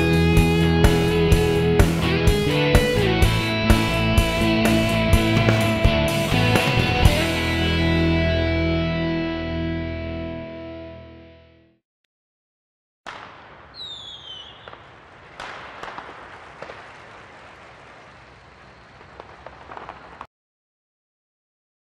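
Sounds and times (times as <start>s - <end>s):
guitar music: 0.0s - 11.7s
firework falling whistle: 13.1s - 20.3s
fireworks crackling and popping: 13.1s - 20.3s.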